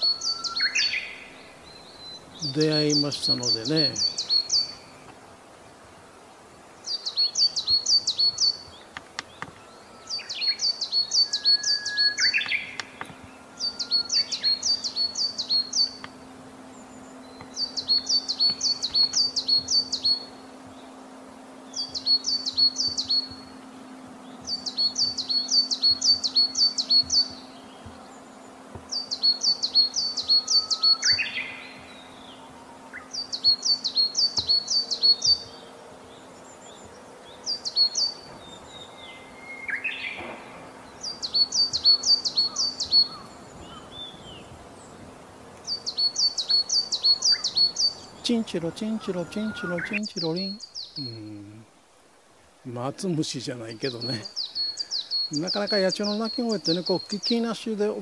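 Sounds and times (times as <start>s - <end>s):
bird singing two-note phrases: 0.0s - 5.0s, 9.7s - 21.0s, 21.6s - 44.4s, 45.6s - 51.7s.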